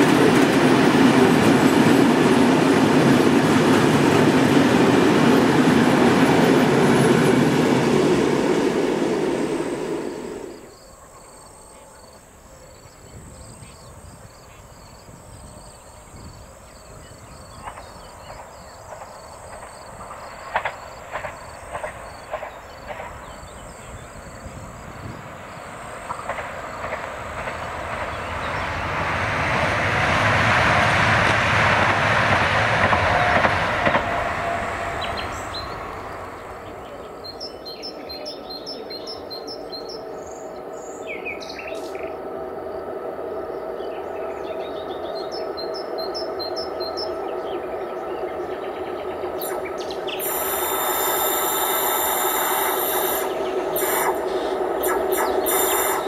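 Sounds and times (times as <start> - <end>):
train passing on rails: 0.0 - 56.0
birds chirping: 34.8 - 56.0.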